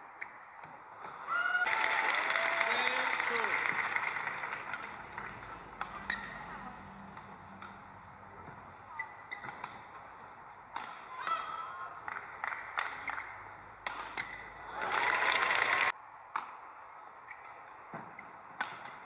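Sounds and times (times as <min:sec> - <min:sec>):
crowd cheering and applause: 0:01.2 - 0:06.4, 0:11.2 - 0:15.9
court shoes squeaking: 0:04.7 - 0:11.6, 0:12.8 - 0:14.7
racket hitting shuttlecock: 0:04.7 - 0:14.8, 0:18.6 - 0:19.0.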